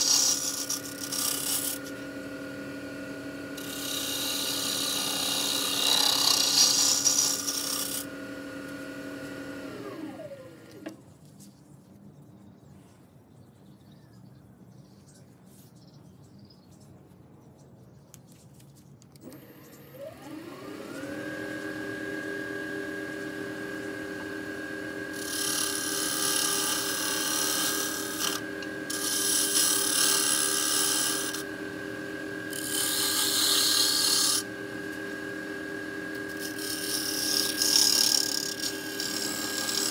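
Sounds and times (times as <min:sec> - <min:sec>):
gouge scraping wood: 0:00.0 - 0:01.9, 0:03.6 - 0:08.1, 0:25.1 - 0:31.5, 0:32.5 - 0:34.5, 0:36.2 - 0:39.9
wood lathe motor whine: 0:00.0 - 0:11.0, 0:19.2 - 0:39.9.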